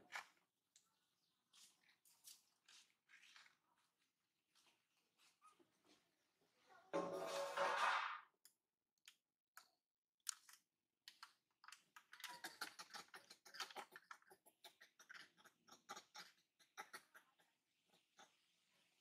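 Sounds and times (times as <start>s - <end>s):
macaques clicking: 9.0s - 18.5s.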